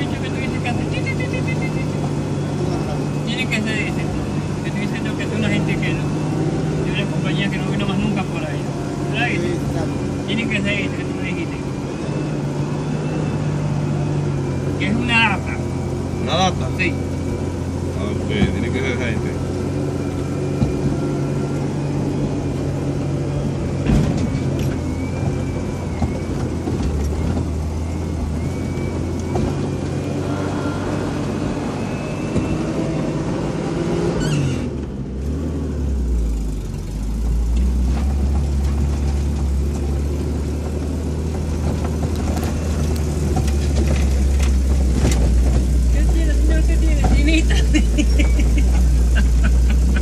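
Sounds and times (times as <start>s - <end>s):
vehicle engine climbing: 0.0s - 50.0s
knocks and rattles from rough ground: 37.6s - 47.4s.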